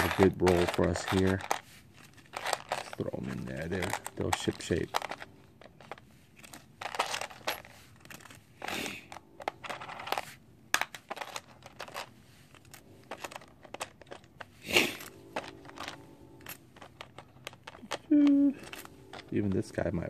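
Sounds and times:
plastic bags crinkling: 0.0 - 8.6.

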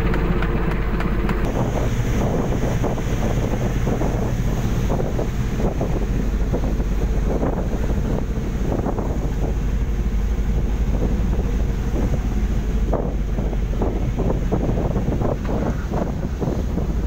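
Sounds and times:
boat engine rumble: 0.0 - 17.0
wind buffeting microphone: 0.0 - 17.0.

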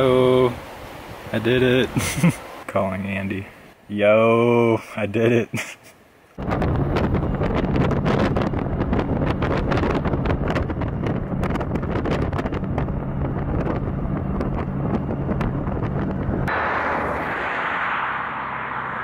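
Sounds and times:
car and tyre drone: 6.4 - 19.0
wind buffeting microphone: 6.4 - 19.0.

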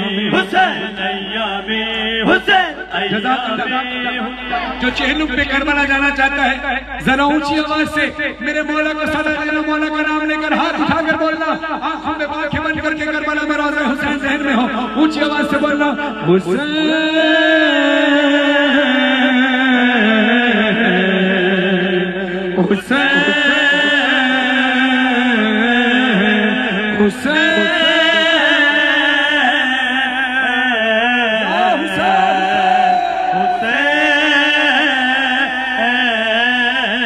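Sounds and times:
crowd chanting long cries: 0.0 - 8.6, 16.2 - 37.0.

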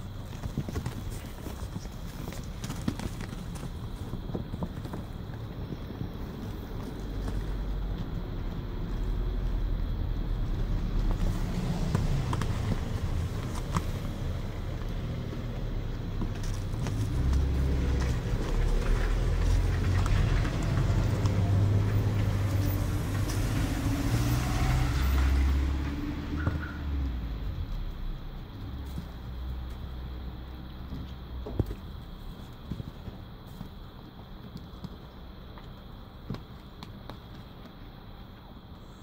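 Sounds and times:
small rustles and clicks: 0.0 - 23.9, 27.6 - 38.8
vehicle passing rumble: 3.5 - 33.5.

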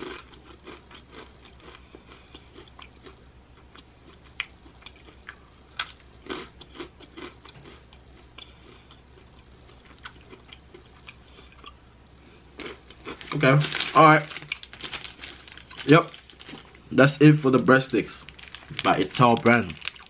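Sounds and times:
person chewing crunchy breadstick: 0.0 - 16.9, 18.2 - 20.0.

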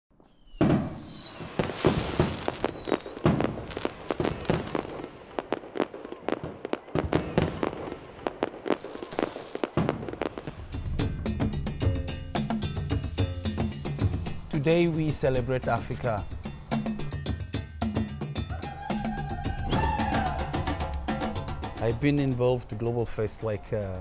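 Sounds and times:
falling firework whistles: 0.1 - 7.8, 8.6 - 10.6, 19.0 - 21.4
fireworks bangs and crackles: 0.1 - 17.5.

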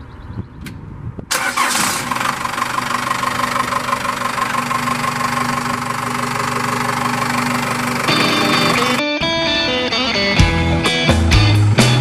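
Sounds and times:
diesel engine idling: 1.3 - 9.0.

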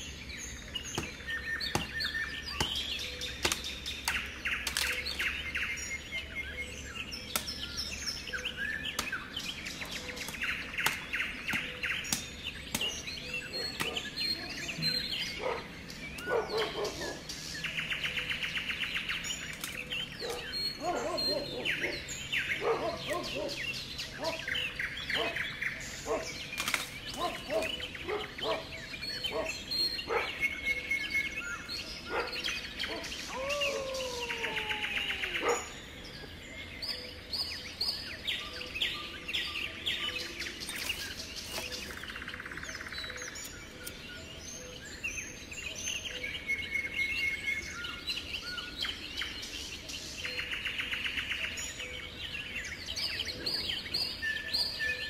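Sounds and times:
songbirds chirping: 0.0 - 55.0
twigs crackling underfoot: 0.8 - 5.8, 7.2 - 17.2, 19.0 - 22.0, 26.0 - 28.6, 40.1 - 44.1.

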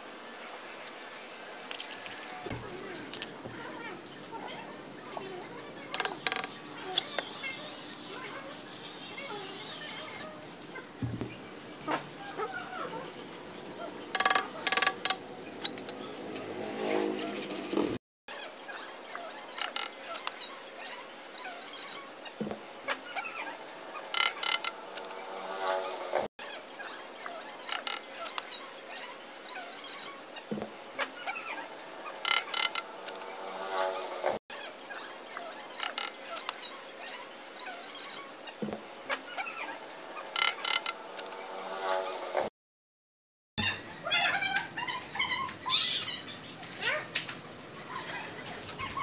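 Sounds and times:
small squeaks: 1.7 - 13.2, 13.8 - 16.0, 19.2 - 22.1, 22.9 - 26.0, 27.6 - 38.3, 39.1 - 42.2.

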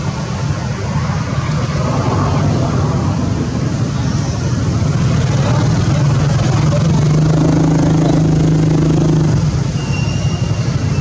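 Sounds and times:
constant rumbling noise: 0.0 - 11.0
motor engine running: 4.9 - 9.7.

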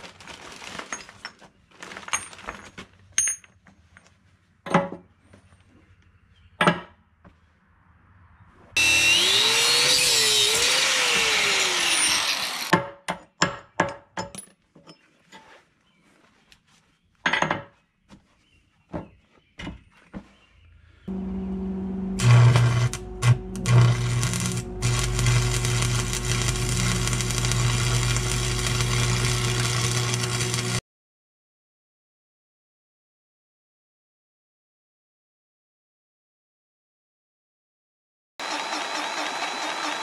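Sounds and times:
angle grinder cutting steel: 8.8 - 12.7, 21.1 - 30.8, 38.4 - 40.0.

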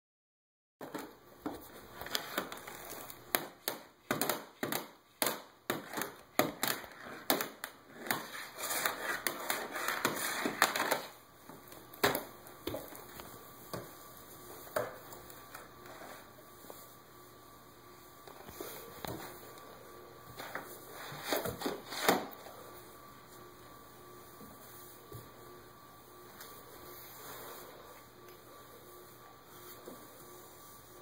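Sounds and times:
cases scraping and sliding: 8.0 - 11.2.

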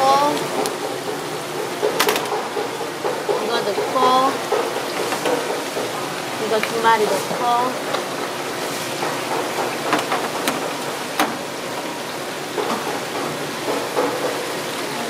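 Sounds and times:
water splashing and bubbling: 0.0 - 15.0
sharp clicks and knocks: 0.6 - 3.9, 9.0 - 11.4.

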